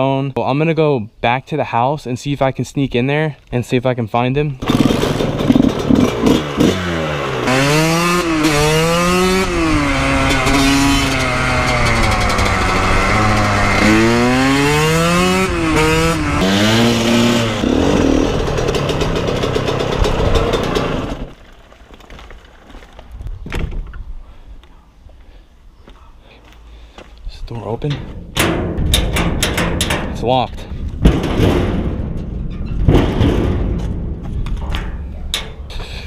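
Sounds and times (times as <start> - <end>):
dirt bike engine accelerating: 4.6 - 21.4.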